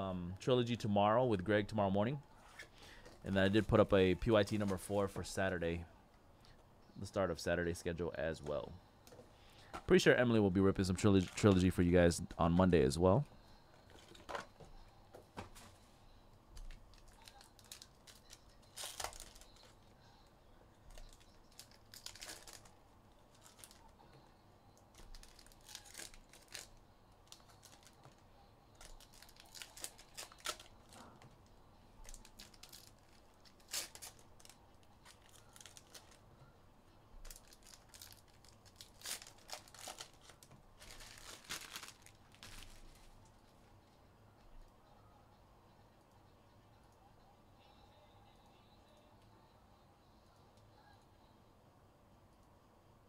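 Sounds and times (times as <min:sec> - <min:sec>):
plastic wrapping crinkling: 0:11.0 - 0:11.7, 0:16.6 - 0:19.9, 0:20.9 - 0:24.0, 0:24.8 - 0:31.4, 0:32.0 - 0:36.3, 0:37.2 - 0:43.3.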